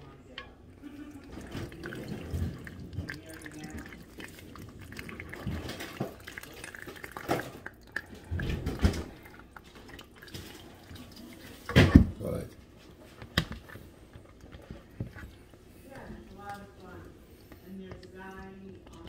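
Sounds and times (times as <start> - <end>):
liquid trickling through a sieve: 0.8 - 12.5.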